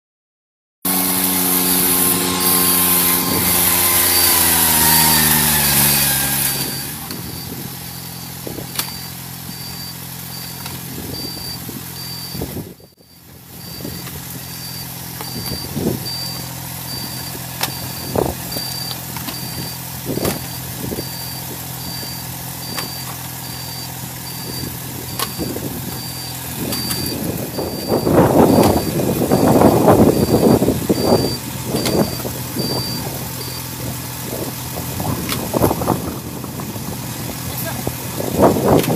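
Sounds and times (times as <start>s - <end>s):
small engine running: 0.9s - 38.9s
faint high beep: 8.8s - 19.8s, 21.0s - 33.7s.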